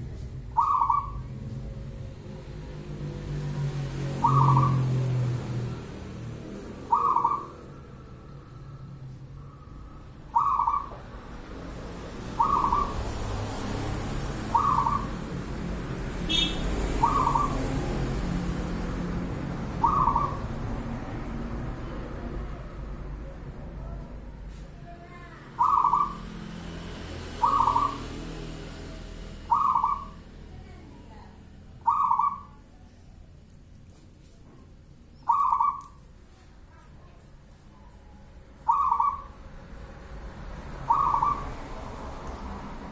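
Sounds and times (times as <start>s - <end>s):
dove cooing: 0.6s - 1.4s, 4.2s - 5.0s, 6.8s - 8.5s, 10.3s - 11.0s, 12.4s - 13.1s, 14.4s - 15.3s, 16.3s - 17.7s, 19.7s - 20.5s, 25.6s - 26.3s, 27.4s - 28.1s, 29.5s - 30.2s, 31.8s - 32.6s, 35.2s - 36.0s, 38.6s - 39.4s, 40.8s - 41.4s.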